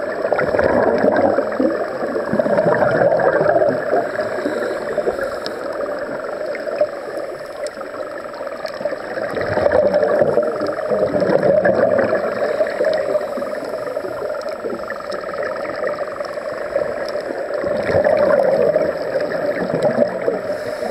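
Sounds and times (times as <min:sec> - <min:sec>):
bubbles gurgling: 0:00.0 - 0:20.9
scuba divers breathing underwater: 0:00.0 - 0:20.9.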